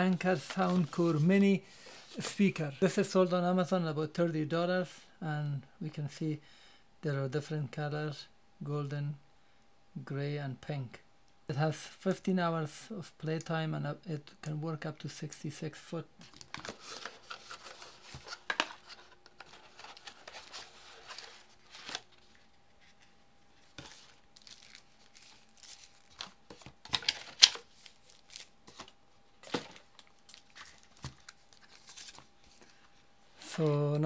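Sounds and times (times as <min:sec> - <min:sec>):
paper cards shuffling: 0:00.0 - 0:01.3, 0:16.2 - 0:33.8
tissue paper crinkling: 0:16.3 - 0:32.8.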